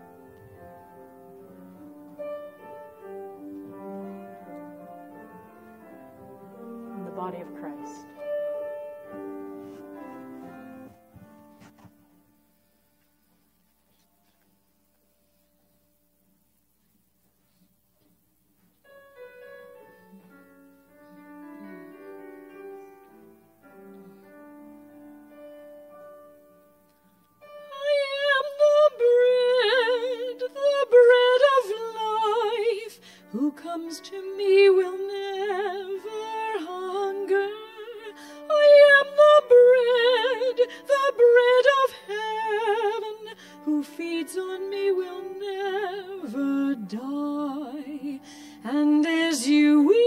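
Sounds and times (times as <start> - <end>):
woman singing with vibrato: 27.7 - 50.0.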